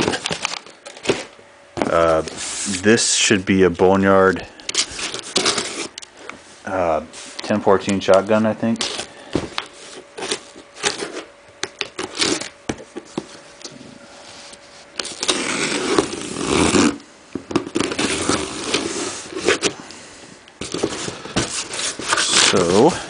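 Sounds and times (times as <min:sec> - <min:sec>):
knife cutting packing tape: 0:04.7 - 0:06.1, 0:08.8 - 0:12.6, 0:15.0 - 0:17.0, 0:17.6 - 0:19.8, 0:20.6 - 0:22.9.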